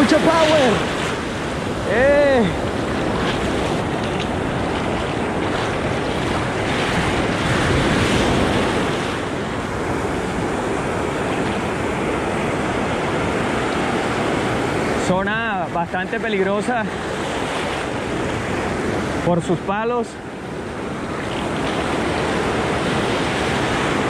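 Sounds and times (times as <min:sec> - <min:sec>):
wind on microphone: 0:00.0 - 0:15.0
ocean surf breaking: 0:00.0 - 0:24.0
person shouting with effort: 0:01.8 - 0:02.6.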